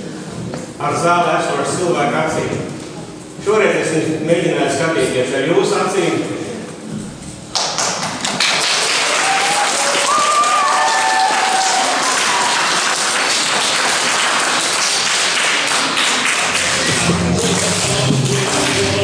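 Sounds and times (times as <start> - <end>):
audience applauding: 7.5 - 19.0.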